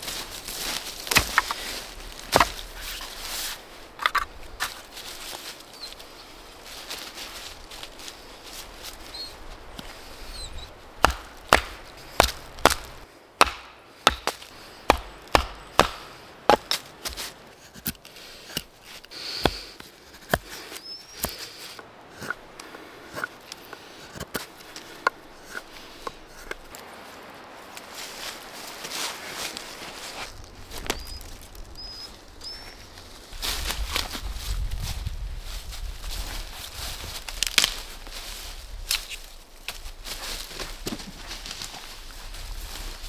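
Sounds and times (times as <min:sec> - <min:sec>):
wood chopping: 0:01.0 - 0:01.6, 0:02.3 - 0:02.7, 0:11.0 - 0:18.7, 0:19.4 - 0:20.6.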